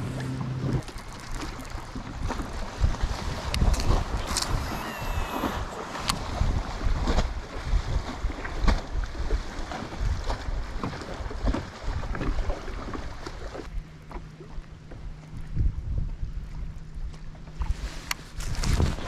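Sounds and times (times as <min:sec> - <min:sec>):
steady low hum: 0:00.0 - 0:01.2
wind buffeting microphone: 0:00.0 - 0:13.9, 0:14.9 - 0:19.0
water lapping against boat: 0:00.0 - 0:19.0.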